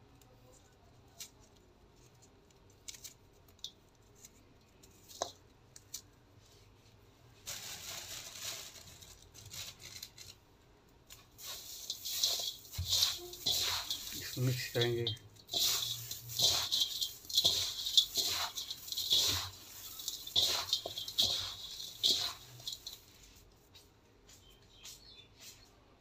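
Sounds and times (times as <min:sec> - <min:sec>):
dry feed rustling by hand: 0:07.4 - 0:10.4, 0:11.1 - 0:25.7
crumbs dropping in steel bowl: 0:11.0 - 0:23.3.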